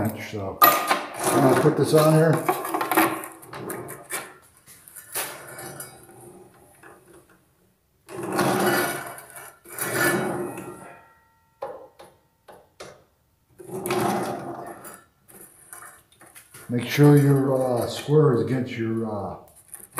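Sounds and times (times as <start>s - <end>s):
saw table rolling along rails: 1.0s - 7.3s, 8.1s - 11.3s, 13.6s - 18.5s.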